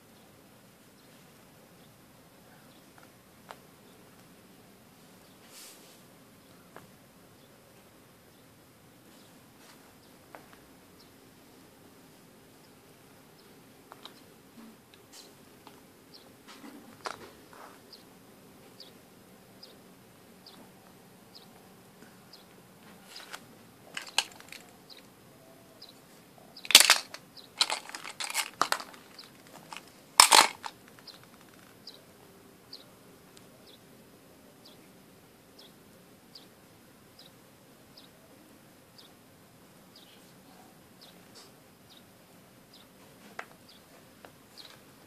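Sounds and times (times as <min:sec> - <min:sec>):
plastic toys clattering: 0:23.1 - 0:25.1, 0:26.6 - 0:31.7.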